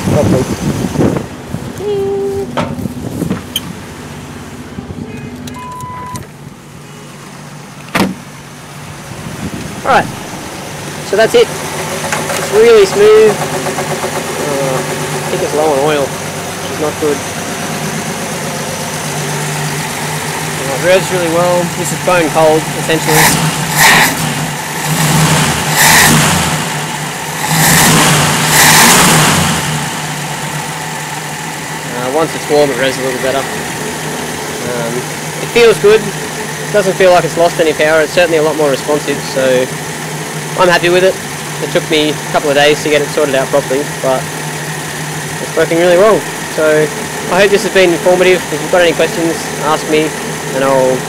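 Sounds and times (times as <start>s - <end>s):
car engine idling: 0.0s - 51.0s
second car engine running: 0.0s - 51.0s
short beep: 5.5s - 6.3s
sharp knock: 7.9s - 8.2s.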